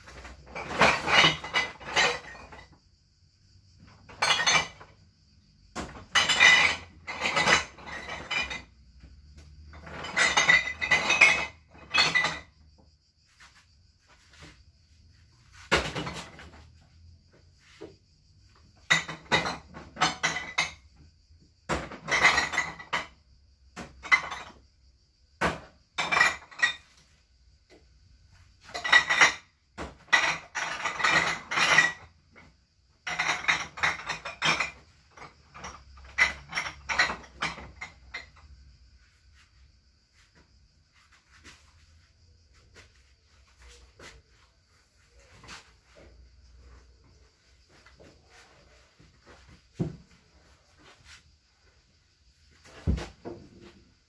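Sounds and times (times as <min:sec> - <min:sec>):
metal objects clinking: 0:00.1 - 0:02.8, 0:03.9 - 0:05.0, 0:05.8 - 0:08.8, 0:09.6 - 0:12.6, 0:28.6 - 0:38.6.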